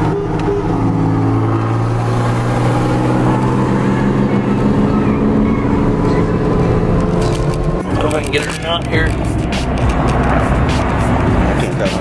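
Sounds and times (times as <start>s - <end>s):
car engine and road drone: 0.0s - 12.0s.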